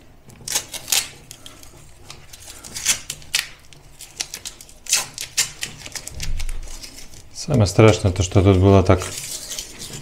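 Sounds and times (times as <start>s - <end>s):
masking tape tearing: 0.3s - 10.0s.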